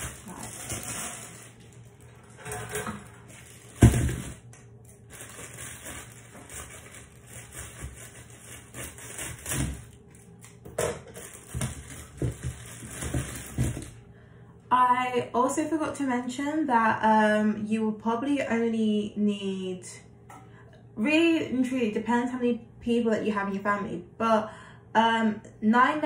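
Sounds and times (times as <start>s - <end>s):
kitchen clatter and knocks: 2.3s - 4.4s, 10.7s - 14.0s.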